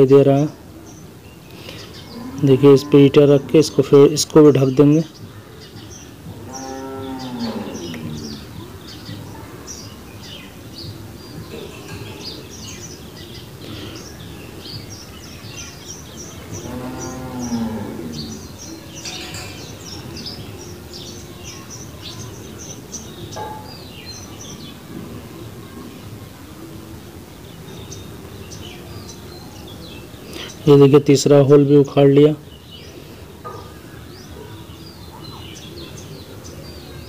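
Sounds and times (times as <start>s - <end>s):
small birds chirping: 0.0s - 37.0s
cow mooing: 6.4s - 8.4s, 16.6s - 18.4s.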